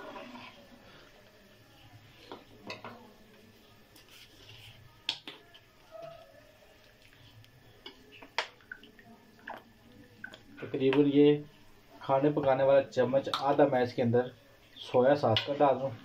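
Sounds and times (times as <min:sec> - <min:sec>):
ladle stirring soup in pan: 0:00.0 - 0:01.3.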